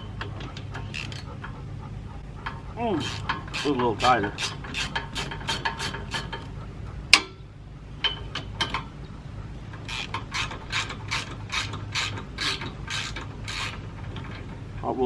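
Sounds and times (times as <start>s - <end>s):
ratchet wrench clicking: 3.0s - 6.5s, 9.8s - 13.8s.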